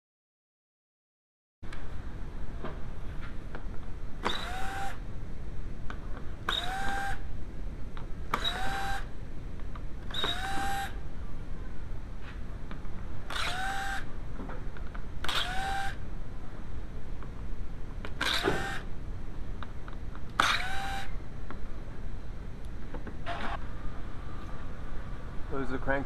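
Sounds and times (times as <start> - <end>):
power screwdriver whining: 4.2 - 5.0, 6.5 - 7.2, 8.3 - 9.1, 10.1 - 11.0, 13.3 - 14.1, 15.2 - 16.0, 18.2 - 18.8, 20.4 - 21.1.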